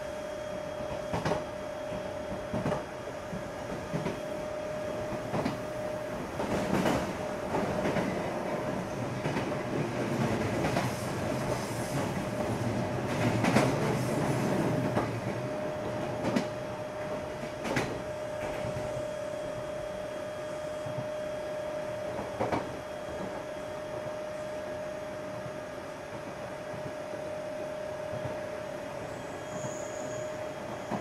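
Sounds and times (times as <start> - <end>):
train rumble: 0.0 - 31.0.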